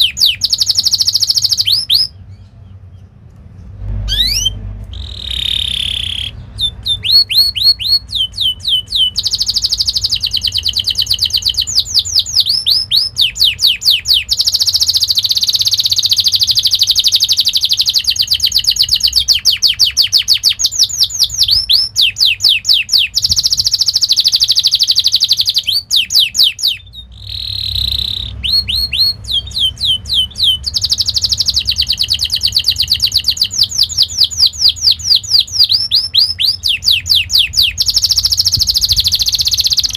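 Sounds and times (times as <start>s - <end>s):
canary singing: 0.0s - 39.9s.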